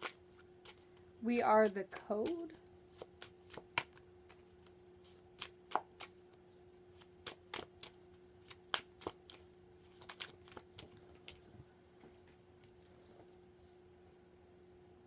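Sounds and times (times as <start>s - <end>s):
cards being shuffled: 0.0s - 11.5s.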